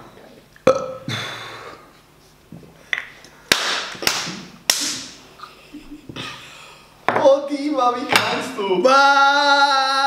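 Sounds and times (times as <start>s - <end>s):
person gulping a drink: 0.6s - 1.1s.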